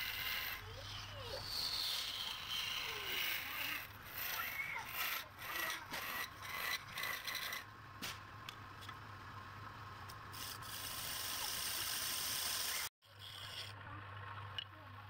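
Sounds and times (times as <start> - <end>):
tool scraping spinning wood: 0.0 - 7.7, 10.3 - 13.8.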